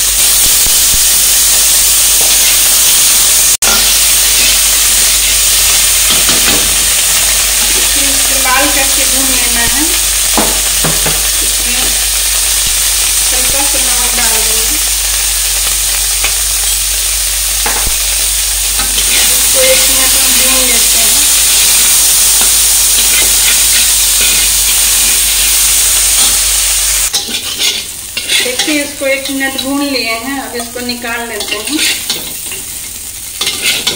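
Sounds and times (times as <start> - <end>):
food sizzling in oil: 0.0 - 33.9
metal spatula scraping a pan: 18.8 - 20.8, 22.4 - 25.5, 27.1 - 29.8, 31.3 - 32.8, 33.4 - 33.9.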